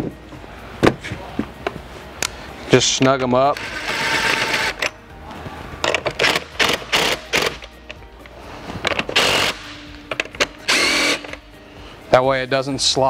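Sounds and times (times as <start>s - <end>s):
cordless drill driving bolts: 3.5s - 4.9s, 5.9s - 7.7s, 8.9s - 11.4s.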